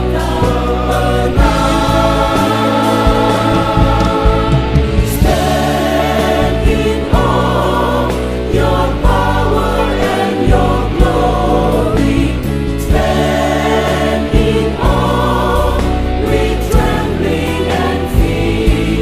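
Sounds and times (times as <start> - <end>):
group singing worship song: 0.0 - 19.0
band accompaniment with drum beat: 0.1 - 8.3.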